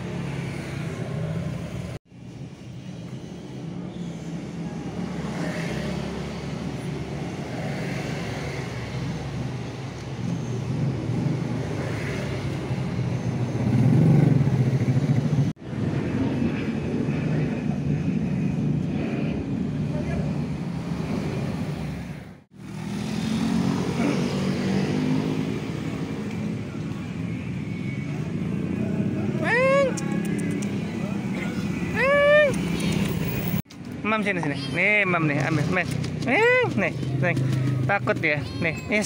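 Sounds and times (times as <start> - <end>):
vehicle engine humming: 24.9 - 39.0.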